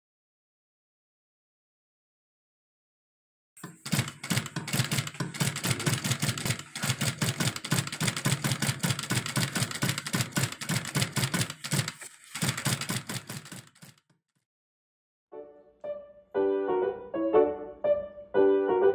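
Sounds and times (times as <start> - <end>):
sewing machine clattering: 3.6 - 14.2.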